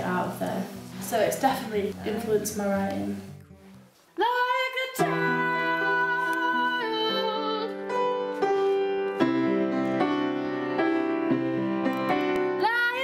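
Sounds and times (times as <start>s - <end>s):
music with held chords: 5.0s - 13.0s.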